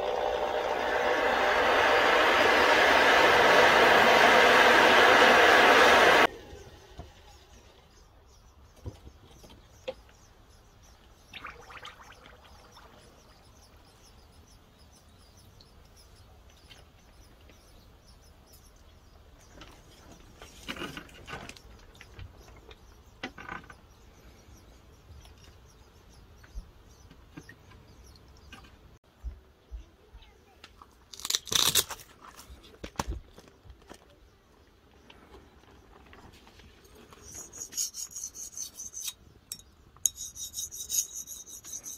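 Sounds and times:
hot blade crackling in quench bath: 0:31.1 - 0:31.9.

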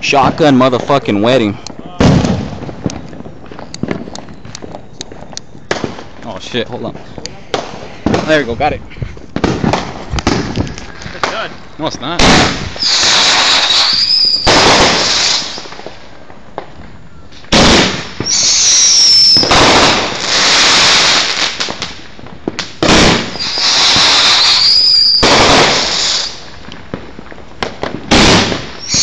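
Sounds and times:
firework crackling break: 0:09.3 - 0:29.0
firework whistle: 0:12.8 - 0:15.7, 0:17.1 - 0:21.4, 0:23.3 - 0:26.4, 0:28.1 - 0:29.0.

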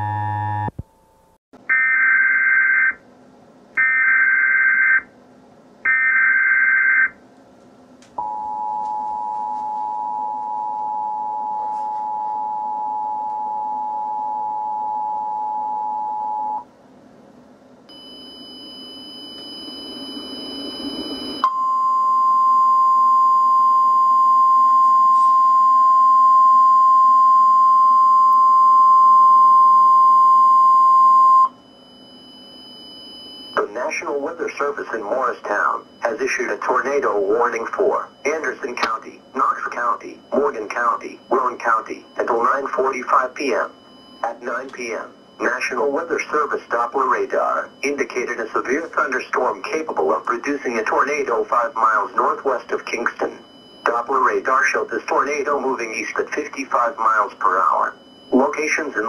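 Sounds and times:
two-tone attention signal: 0:00.0 - 0:00.8
steady warning alarm tone: 0:03.8 - 0:05.1, 0:05.9 - 0:07.2, 0:08.2 - 0:16.7, 0:17.9 - 0:59.0.

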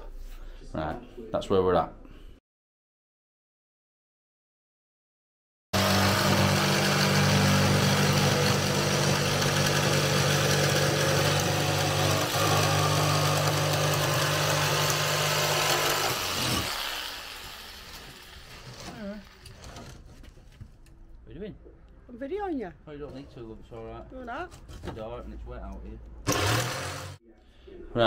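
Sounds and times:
jigsaw cutting wood: 0:05.8 - 0:19.9, 0:26.3 - 0:27.2.

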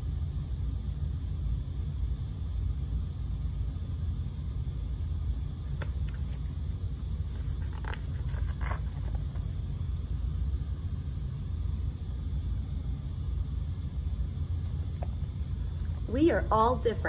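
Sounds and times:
low room rumble: 0:00.0 - 0:17.0
book pages rustling: 0:05.8 - 0:06.6, 0:07.2 - 0:09.7.

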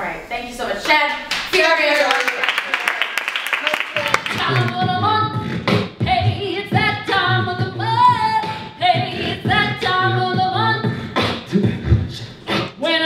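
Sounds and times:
women singing: 0:04.0 - 0:05.4, 0:06.0 - 0:11.4, 0:12.5 - 0:13.0
steady low beat: 0:04.2 - 0:12.8.

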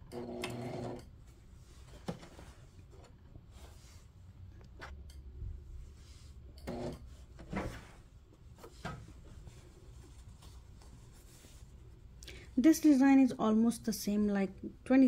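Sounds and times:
fabric rubbing: 0:07.1 - 0:12.1.

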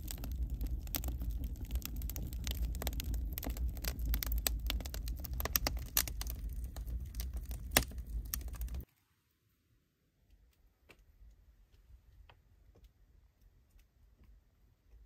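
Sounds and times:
low rumble: 0:00.0 - 0:08.8
wood fire crackling: 0:00.0 - 0:08.9.

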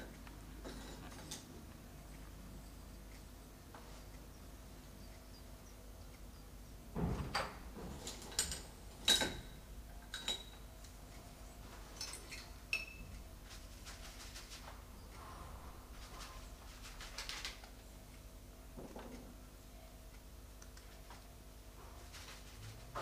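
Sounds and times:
brushes clinking against ceramic pot: 0:12.0 - 0:13.0.

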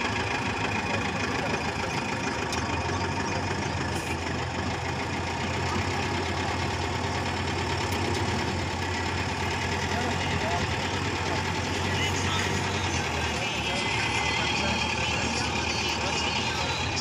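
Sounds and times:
diesel truck engine running: 0:00.0 - 0:17.0.

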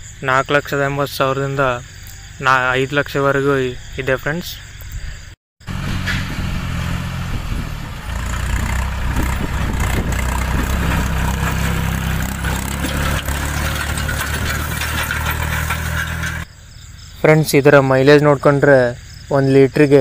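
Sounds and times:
tractor diesel engine under load: 0:05.6 - 0:16.5.

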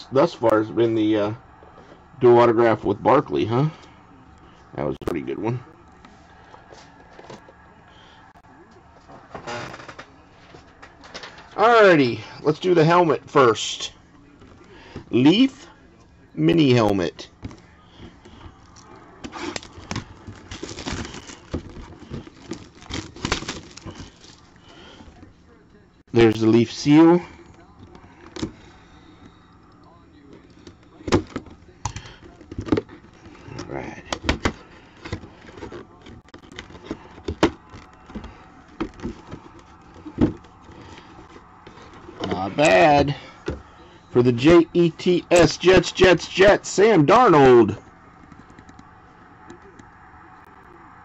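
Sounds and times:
plastic wrap crinkling and tearing: 0:19.2 - 0:24.5.

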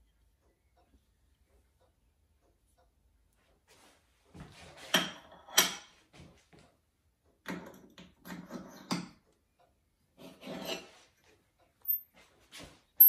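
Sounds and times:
metal scraping on steel plate: 0:10.2 - 0:11.1.

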